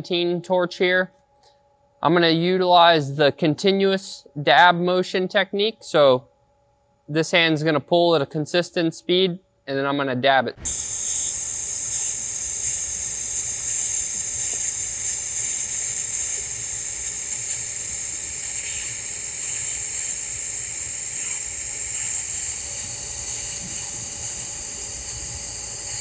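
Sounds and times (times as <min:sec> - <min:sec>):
welding arc hissing: 0:10.6 - 0:26.0.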